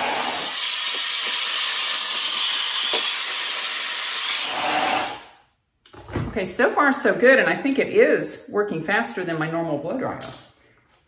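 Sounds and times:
hair dryer blowing: 0:00.0 - 0:05.2.

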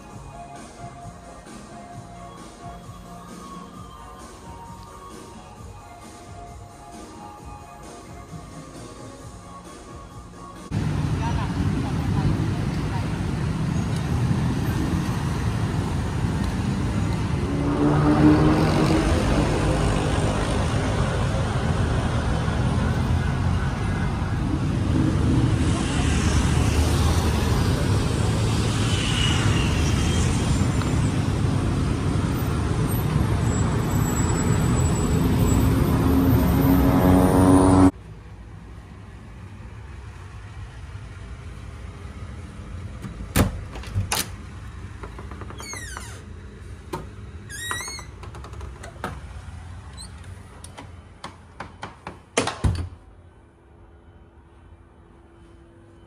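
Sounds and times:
street traffic noise: 0:00.0 - 0:56.0
engine speeding up: 0:14.4 - 0:33.4, 0:34.6 - 0:38.0
short squeaks: 0:49.9 - 0:50.3.

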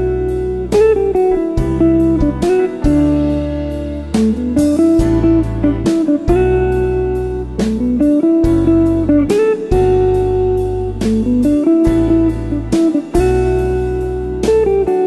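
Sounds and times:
drums: 0:00.0 - 0:15.0
electric guitar: 0:00.0 - 0:15.0
keyboard chords: 0:00.0 - 0:15.0
low bass notes: 0:00.0 - 0:15.0.

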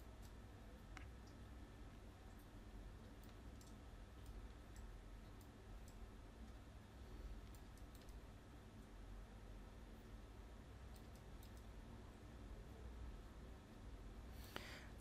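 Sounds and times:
computer mouse and keys clicking: 0:00.0 - 0:06.6, 0:07.3 - 0:09.0, 0:10.8 - 0:11.9
low steady hum: 0:00.0 - 0:15.0.

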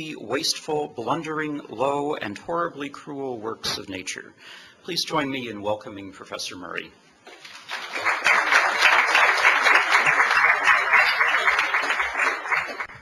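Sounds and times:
audience applauding: 0:07.4 - 0:13.0.

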